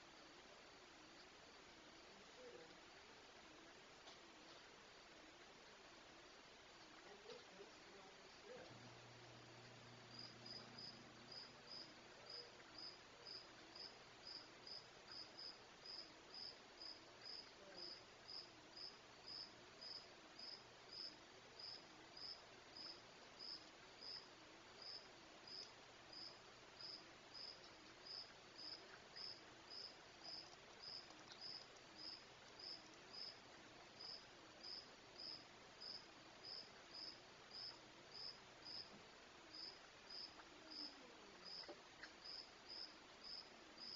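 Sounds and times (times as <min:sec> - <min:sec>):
night background hiss: 0:00.0 - 0:43.9
insect chirping: 0:09.8 - 0:38.9, 0:39.5 - 0:43.9.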